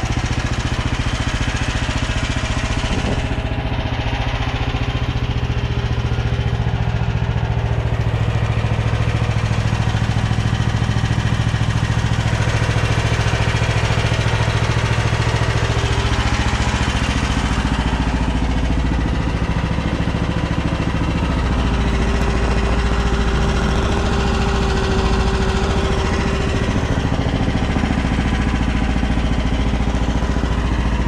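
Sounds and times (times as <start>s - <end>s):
excavator engine idling: 0.0s - 31.0s.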